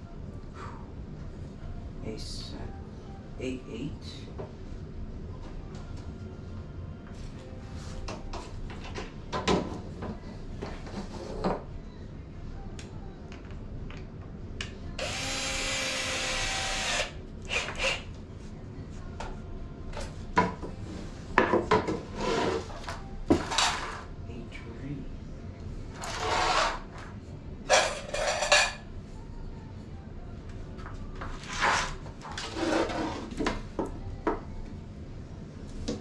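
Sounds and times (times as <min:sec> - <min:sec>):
power drill running: 0:15.0 - 0:18.0.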